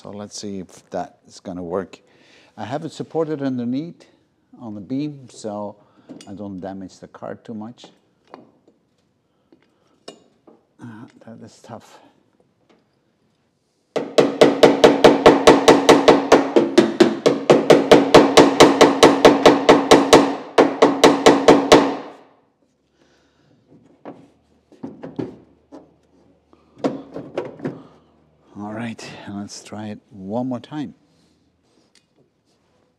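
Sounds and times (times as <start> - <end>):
hammer beating on metal panel: 14.0 - 22.2.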